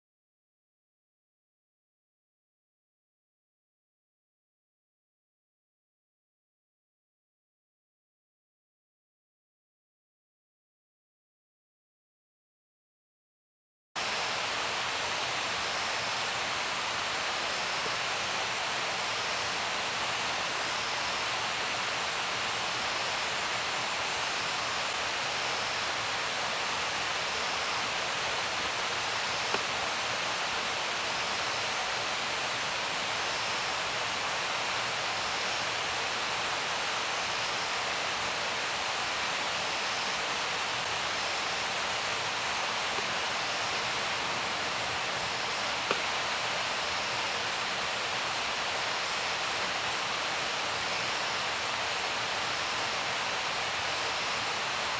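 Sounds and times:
steady hiss: 14.0s - 54.9s.

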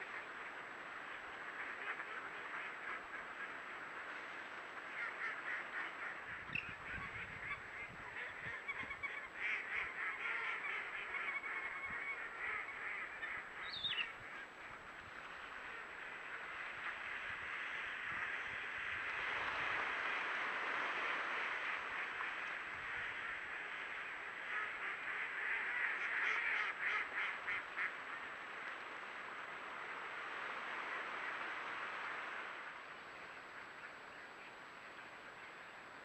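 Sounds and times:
ducks quacking: 1.5s - 3.9s, 4.8s - 14.8s, 21.0s - 28.3s.

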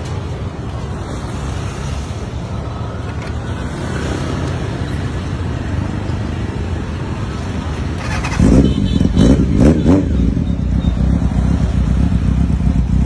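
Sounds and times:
motorcycle engine idling: 10.4s - 13.0s.

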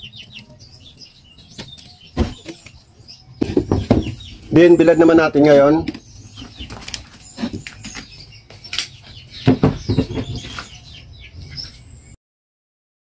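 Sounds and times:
bird chirps: 0.0s - 12.2s
tray knocking and clattering: 9.4s - 10.5s.

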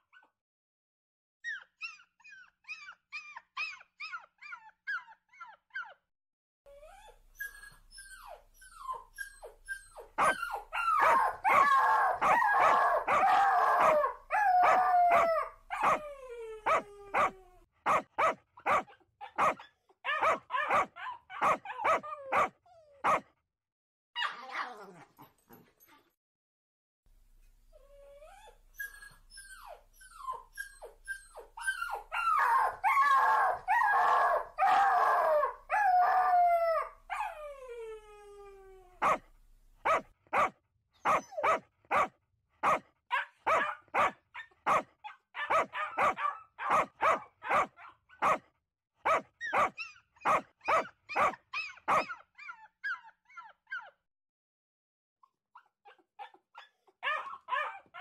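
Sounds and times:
dogs whining and howling: 1.4s - 6.0s, 6.7s - 17.7s, 19.2s - 23.0s, 27.7s - 39.2s, 39.9s - 42.0s, 43.1s - 48.4s, 49.4s - 54.0s, 55.6s - 58.0s
dogs barking sharply: 10.2s - 16.0s, 17.9s - 23.3s, 39.0s - 39.2s, 39.8s - 40.5s, 41.1s - 48.4s, 49.0s - 52.1s.

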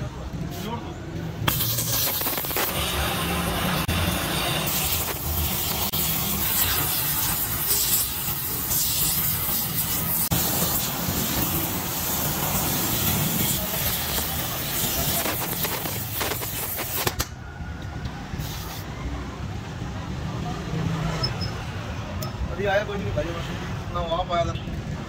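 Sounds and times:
gas torch flame hissing: 1.4s - 17.4s, 18.3s - 18.9s.

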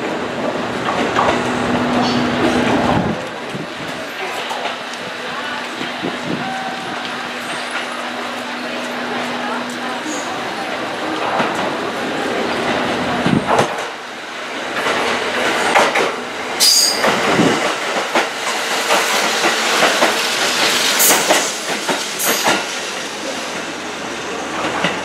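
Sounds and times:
train wheels clacking: 14.7s - 23.6s.

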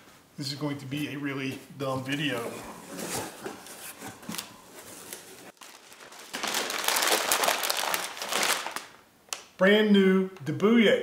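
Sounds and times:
packing paper rustling and crinkling: 2.1s - 9.4s.

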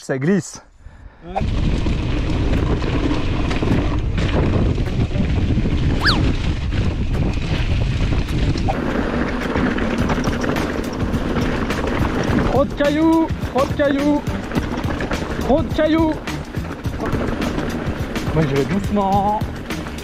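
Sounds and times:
wind buffeting microphone: 0.8s - 20.0s
bike rattling over rocky ground: 1.4s - 20.0s
brief falling squeak: 6.0s - 6.2s.

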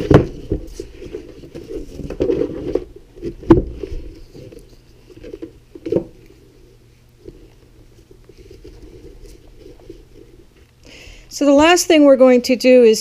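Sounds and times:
plastic box rustles and knocks: 0.0s - 6.2s.

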